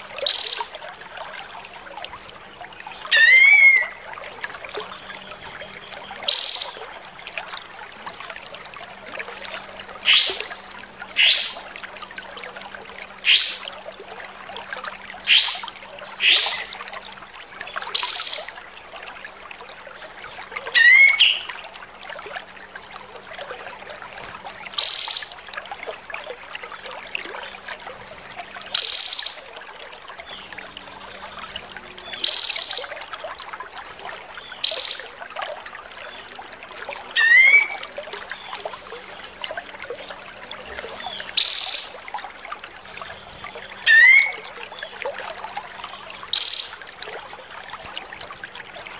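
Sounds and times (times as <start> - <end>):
bulbul calling: 0.2 - 0.8, 3.1 - 4.0, 15.3 - 16.8, 24.8 - 25.4, 32.1 - 33.0, 34.6 - 35.2, 37.2 - 37.8, 41.0 - 42.0, 43.9 - 44.4, 46.3 - 46.9.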